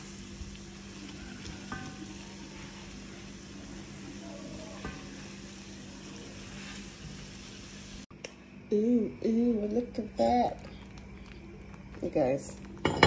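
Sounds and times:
oil sizzling while frying: 0.0 - 8.1.

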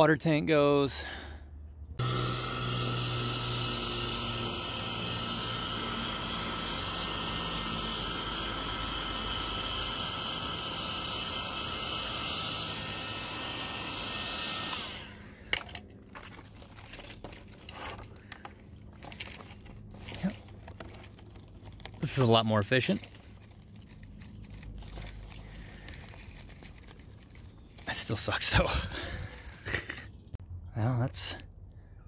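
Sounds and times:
heat gun blowing: 2.0 - 15.8
vinyl crinkling and crackling: 16.2 - 27.9.

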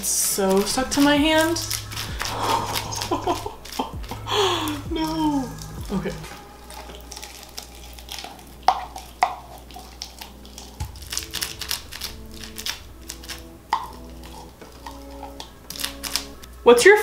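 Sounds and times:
soft background music: 0.0 - 17.0.

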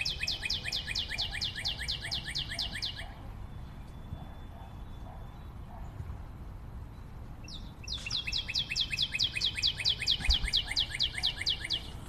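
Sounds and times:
cockatiel calling: 0.0 - 3.2, 7.8 - 12.0.

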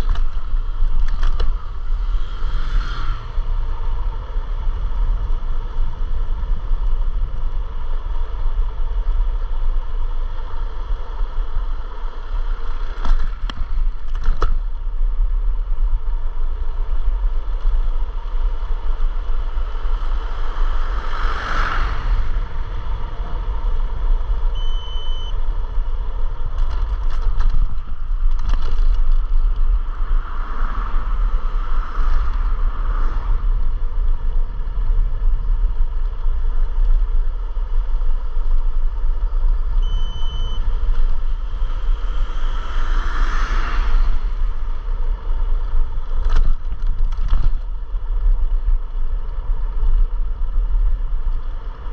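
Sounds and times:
road rumble: 0.0 - 51.9
short high beep: 24.5 - 25.4, 39.8 - 40.7.

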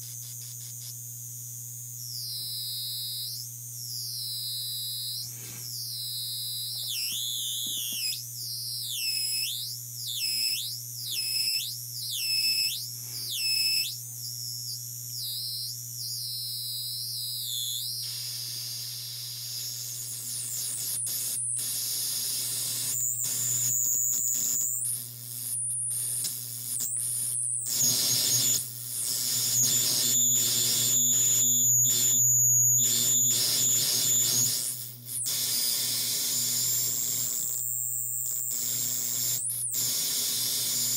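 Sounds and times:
stuttering high whistling tones: 2.1 - 18.7.

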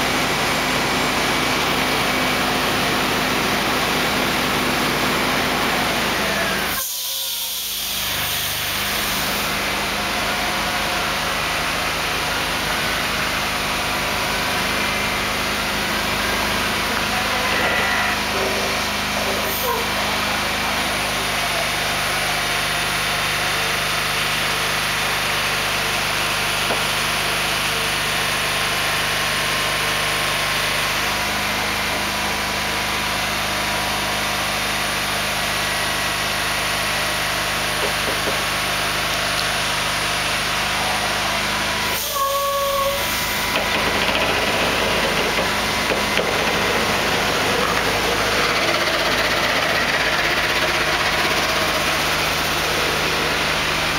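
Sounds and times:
diesel engine running: 0.0 - 53.9
brief high tone: 17.1 - 18.4, 42.0 - 43.1.

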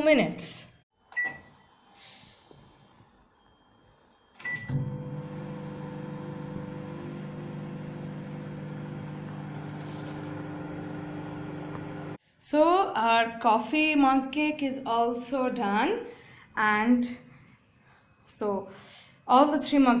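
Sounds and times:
microwave keypad beep: 1.1 - 1.5, 3.4 - 11.9
microwave humming: 3.9 - 12.2.

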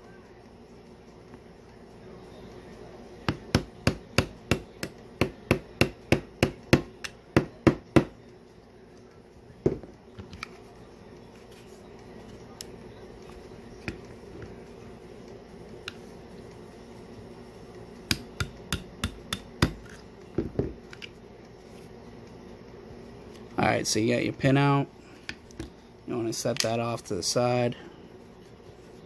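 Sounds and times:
mallet tapping pin punch: 18.1 - 19.8.

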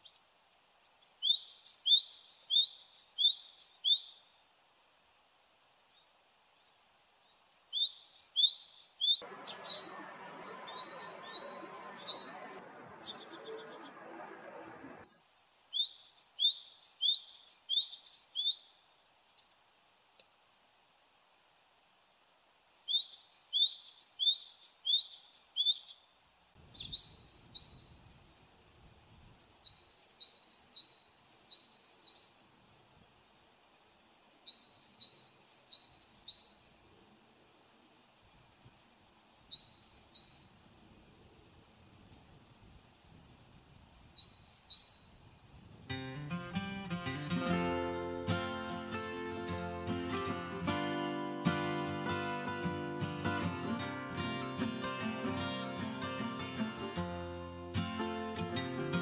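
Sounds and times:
bird singing high notes: 9.0 - 14.0
low rushing noise: 9.2 - 15.2.

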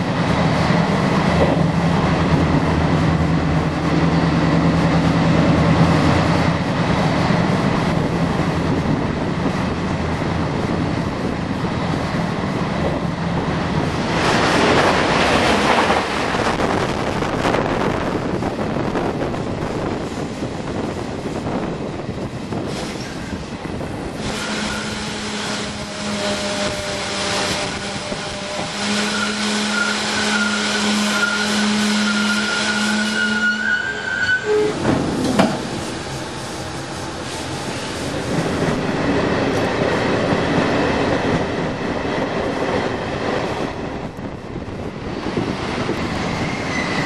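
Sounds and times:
train wheels rumbling on rail: 0.0 - 47.0.

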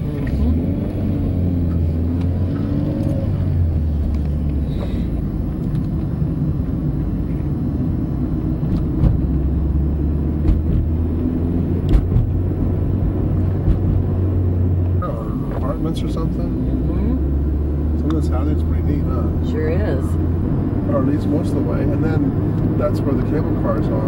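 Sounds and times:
car engine and road rumble: 0.0 - 24.0
short knocks: 11.9 - 12.4.

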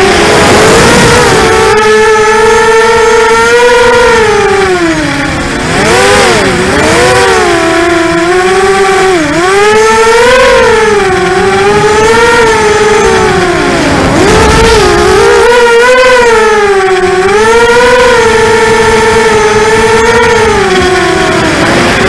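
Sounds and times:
quadcopter motors whining: 0.0 - 22.0.

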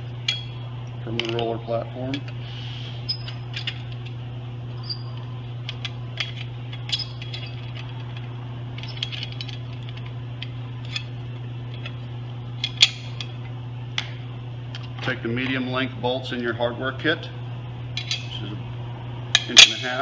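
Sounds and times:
steady low hum: 0.0 - 20.0
metal parts clicking and rattling: 3.1 - 4.1, 4.8 - 11.1, 12.6 - 13.4, 18.0 - 18.4.

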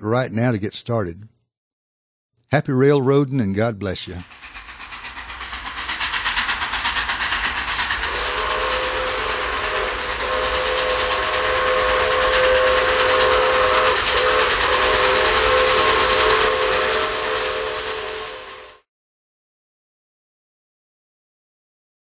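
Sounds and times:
steam locomotive chuffing: 2.8 - 18.9
chime steam whistle: 4.3 - 18.8.

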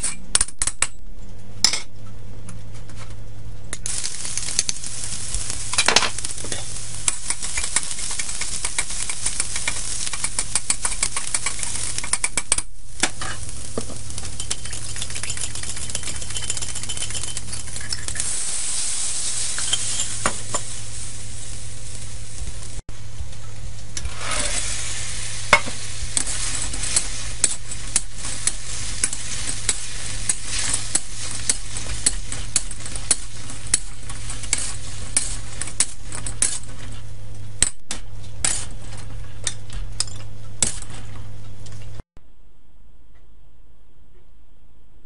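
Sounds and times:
sauce sizzling in hot oil: 3.9 - 22.8, 24.0 - 36.6
metal spatula scraping a wok: 13.0 - 21.2, 24.0 - 37.1.

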